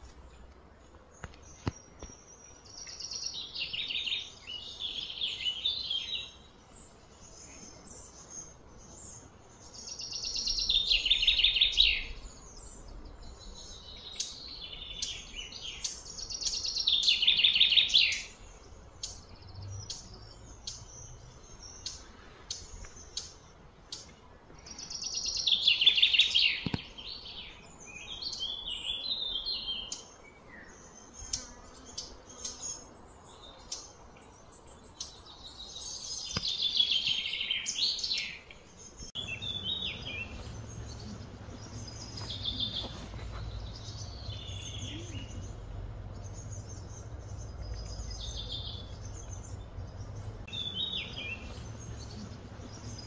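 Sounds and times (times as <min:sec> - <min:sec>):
songbird falling trills: 0:36.2 - 0:37.1.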